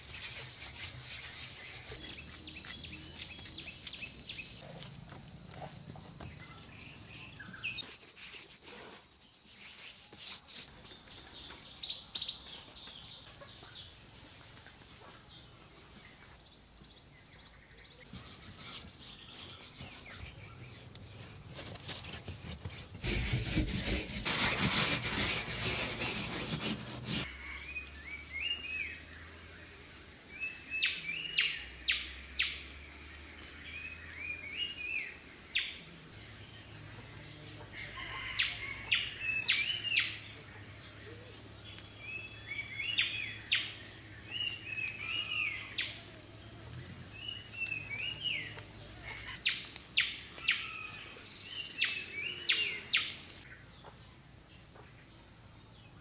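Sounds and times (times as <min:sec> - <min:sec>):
bird chirping: 0:01.7 - 0:14.0
high-pitched insect drone: 0:02.0 - 0:06.4, 0:07.8 - 0:13.3, 0:27.2 - 0:39.0
scraping noise: 0:21.2 - 0:27.3.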